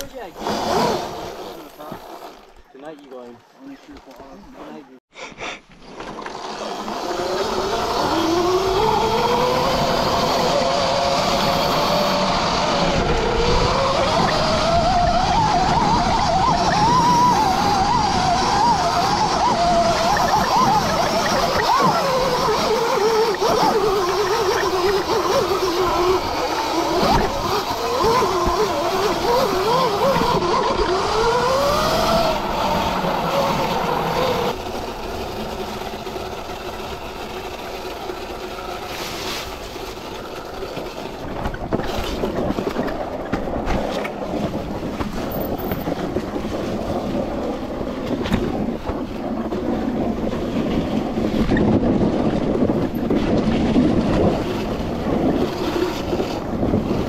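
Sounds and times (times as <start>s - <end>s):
electric motor whine: 6.2s - 41.0s.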